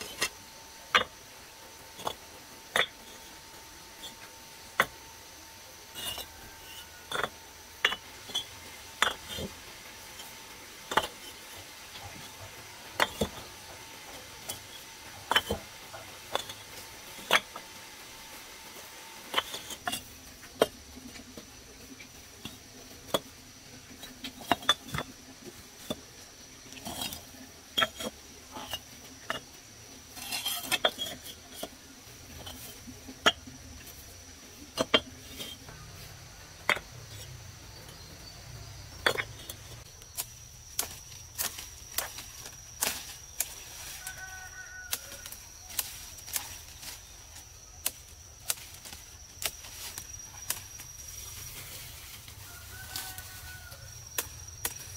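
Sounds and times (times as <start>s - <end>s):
clay bricks clinking and knocking: 0.0s - 1.2s, 1.9s - 5.0s, 5.9s - 9.6s, 10.2s - 17.8s, 19.2s - 42.8s
bricks clattering together: 0.9s - 1.1s, 2.0s - 3.2s, 5.9s - 9.5s, 10.8s - 11.4s, 12.9s - 13.5s, 14.4s - 17.6s, 19.3s - 21.4s, 24.0s - 25.2s, 26.7s - 29.5s, 30.1s - 33.5s, 34.7s - 35.8s, 36.6s - 38.0s, 38.9s - 39.8s.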